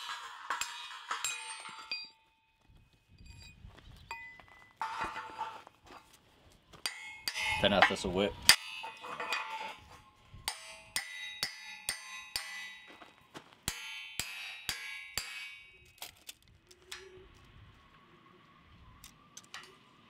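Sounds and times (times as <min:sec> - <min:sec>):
hammer clanging on steel wedge: 0:00.0 - 0:02.2, 0:06.8 - 0:15.8.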